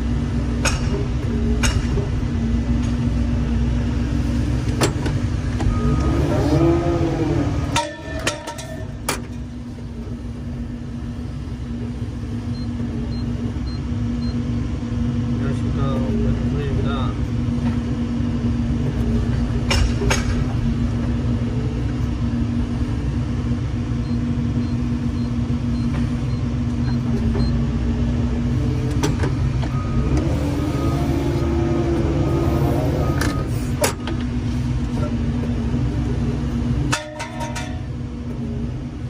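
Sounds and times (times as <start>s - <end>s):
excavator engine and hydraulics running: 0.0s - 39.0s.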